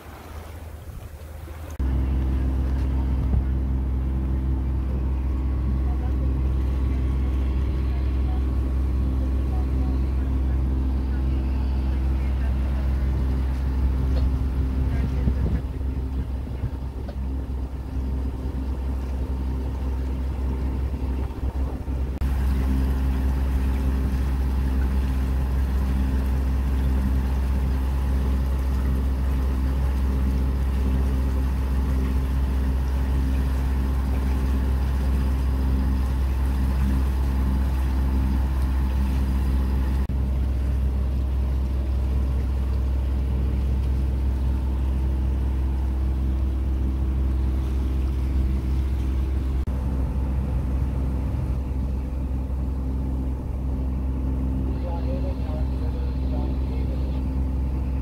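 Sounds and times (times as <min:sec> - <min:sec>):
boat diesel engine droning: 0:00.0 - 0:58.0
hiss of water and wind: 0:00.0 - 0:58.0.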